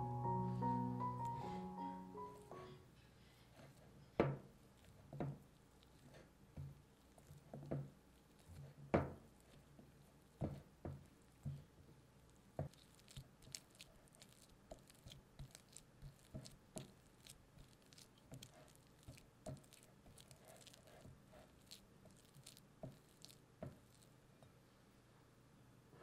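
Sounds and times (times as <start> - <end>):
spatula scraping butter in bowl: 4.7 - 11.7, 12.4 - 24.2.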